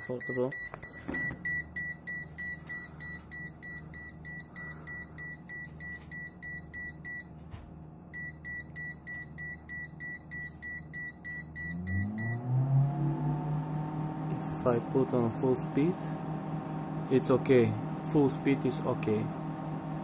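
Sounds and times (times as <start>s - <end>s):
rapid high alarm beeps: 0.0s - 7.3s, 8.2s - 12.4s
low fan hum: 0.0s - 20.0s.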